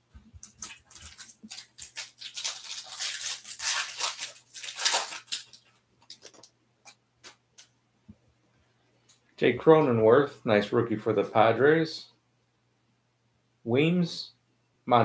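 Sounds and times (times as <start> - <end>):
foil wrapper crinkling and tearing: 0.4 - 6.5.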